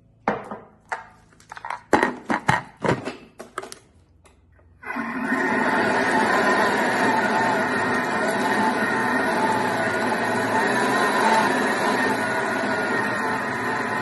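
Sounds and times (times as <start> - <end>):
food processor blades whirring: 4.8 - 14.0.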